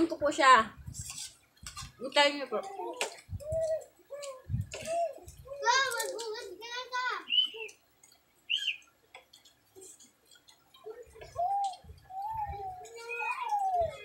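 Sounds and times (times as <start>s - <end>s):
bird chirping: 7.2s - 14.0s.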